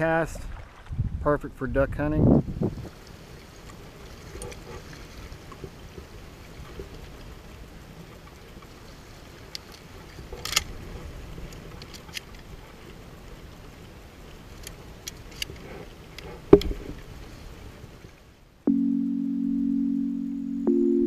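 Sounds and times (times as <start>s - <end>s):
shotgun metal clicks and knocks: 9.6s - 10.7s.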